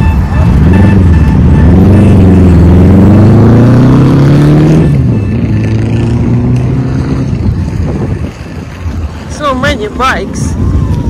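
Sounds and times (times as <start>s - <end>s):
motorcycle engine accelerating: 0.3s - 8.8s.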